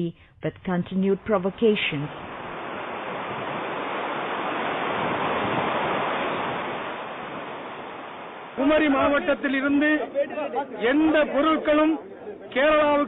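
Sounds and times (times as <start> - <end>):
rushing water: 1.7 - 11.9.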